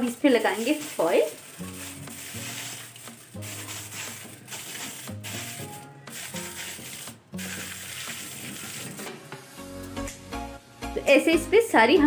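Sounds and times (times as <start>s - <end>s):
aluminium foil crinkling: 0.2s - 9.0s.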